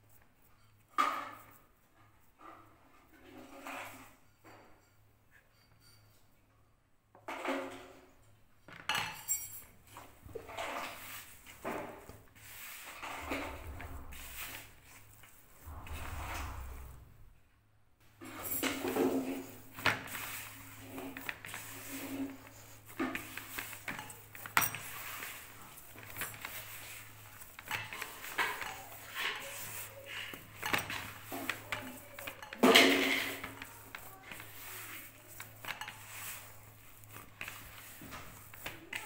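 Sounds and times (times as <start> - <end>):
hands kneading dough: 9.9 - 17.2, 18.2 - 39.0.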